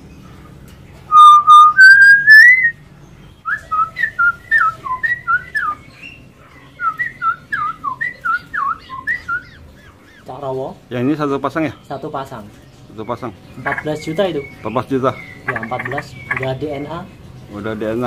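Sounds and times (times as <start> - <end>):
bulbul warbling song: 1.1 - 2.7, 13.6 - 16.8
myna whistled notes: 1.1 - 2.8, 3.4 - 5.9.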